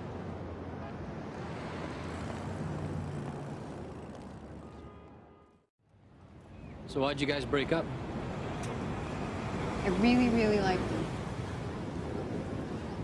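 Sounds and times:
passing vehicles rumble and hiss: 5.9 - 13.0.

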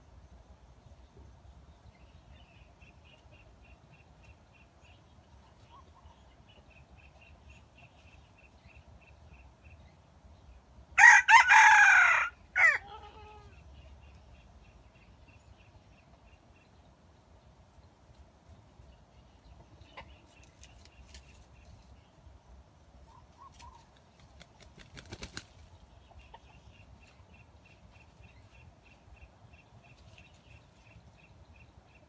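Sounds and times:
rooster crowing: 11.0 - 13.2.

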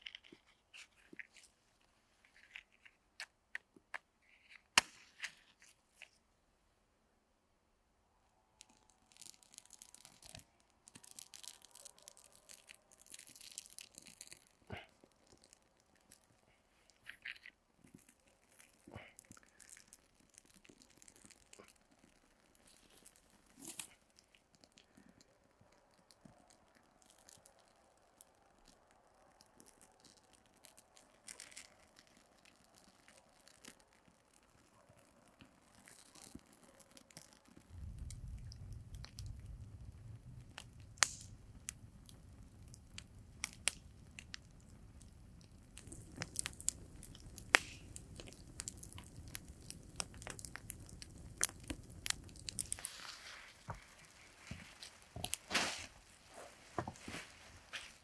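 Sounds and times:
twigs crackling as they burn: 0.0 - 6.2, 8.4 - 58.0
match striking: 2.3 - 5.8, 8.6 - 24.7, 40.5 - 58.0.

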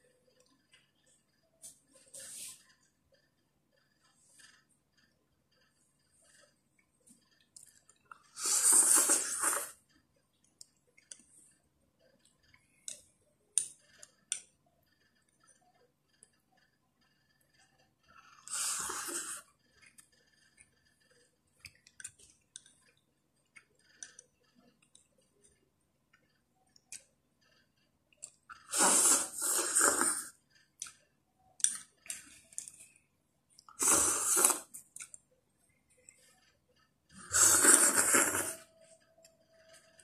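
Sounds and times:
faint chewing: 0.0 - 40.0
loud noodle slurps: 8.3 - 9.8, 18.4 - 19.5, 28.5 - 30.4, 33.7 - 34.8, 37.2 - 38.7.

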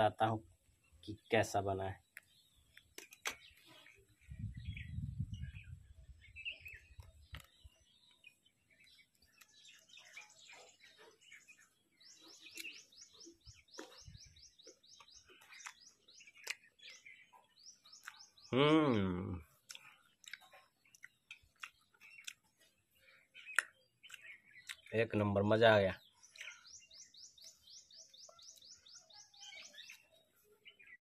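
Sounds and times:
chewing crunches: 12.2 - 17.0, 17.9 - 18.4, 19.4 - 22.8, 23.4 - 24.9, 26.2 - 26.7.

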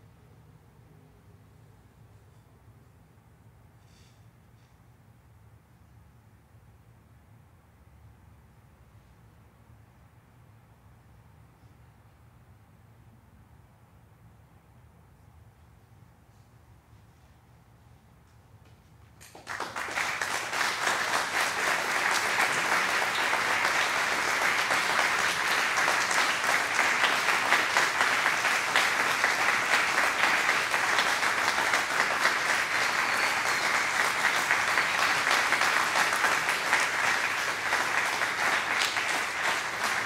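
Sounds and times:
audience applause: 19.2 - 40.0.

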